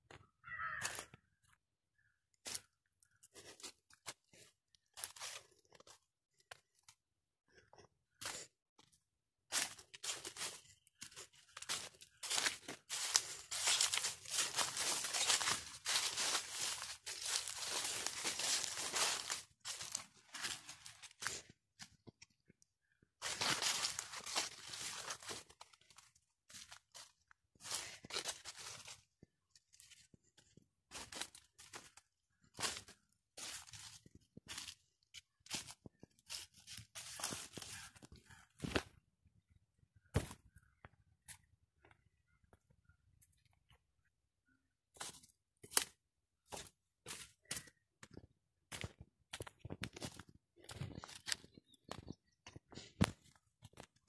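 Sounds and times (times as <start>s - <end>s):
footsteps crunching through dry leaves: 5.0s - 5.6s, 9.5s - 21.5s, 23.2s - 29.1s, 30.9s - 34.8s, 35.5s - 38.5s, 46.5s - 47.7s.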